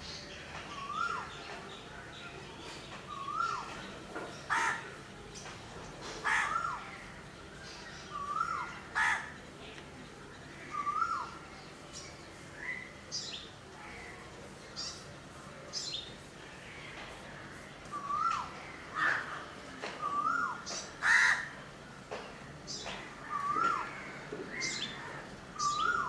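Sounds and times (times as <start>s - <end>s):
crows cawing: 4.5s - 5.0s, 6.2s - 6.8s, 8.9s - 9.4s, 21.0s - 21.6s.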